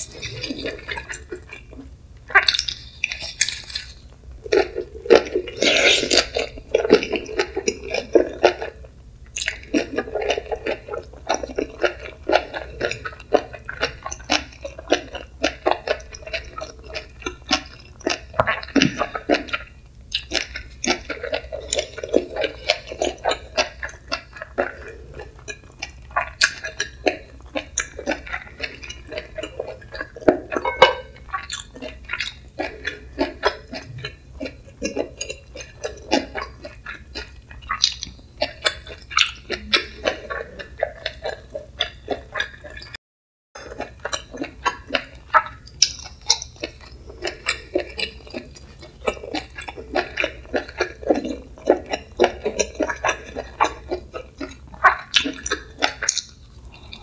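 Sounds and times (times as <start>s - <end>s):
wet chewing: 0.0s - 43.0s, 43.6s - 57.0s.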